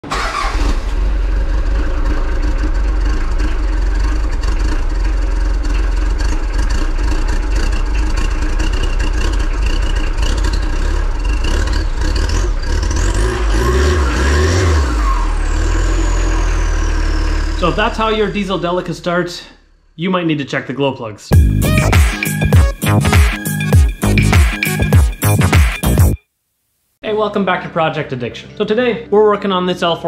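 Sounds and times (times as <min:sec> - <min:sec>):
diesel engine starting and running rough: 0:00.0 - 0:20.0.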